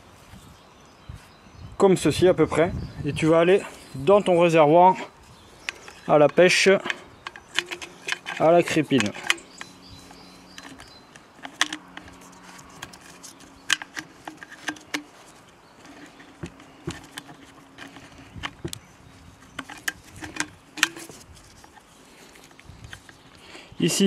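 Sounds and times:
wire hook clicking in plastic tank: 5.7s - 9.7s.

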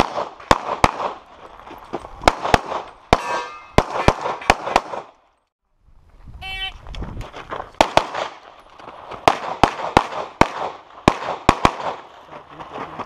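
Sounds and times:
pistol shots with echo: 0.0s - 1.2s, 2.2s - 5.2s, 7.8s - 8.4s, 9.2s - 12.2s.

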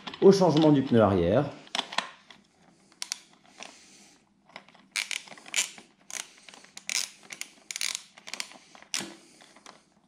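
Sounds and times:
socket ratchet clicking: 3.0s - 3.2s, 4.9s - 9.1s.

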